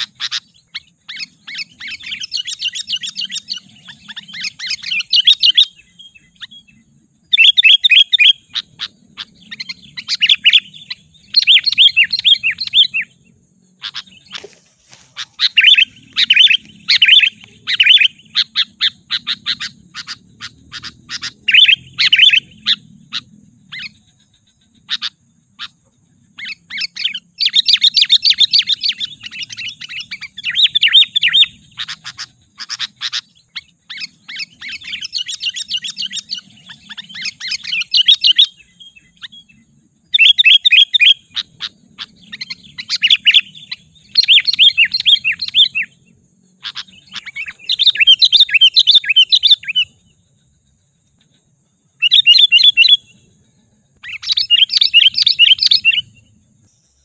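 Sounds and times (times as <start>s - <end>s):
bird singing chirpy phrases: 0.0s - 57.0s.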